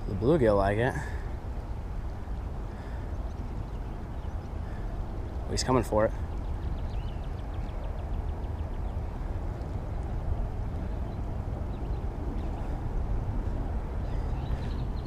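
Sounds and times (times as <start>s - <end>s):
wind buffeting microphone: 0.0s - 15.0s
faint bird chirps: 2.7s - 9.3s.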